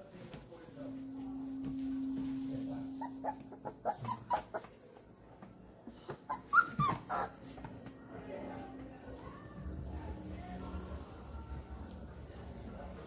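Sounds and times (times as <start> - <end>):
steady low hum: 0.0 - 4.0, 7.3 - 13.0
puppies whimpering: 3.0 - 4.7, 6.2 - 7.4.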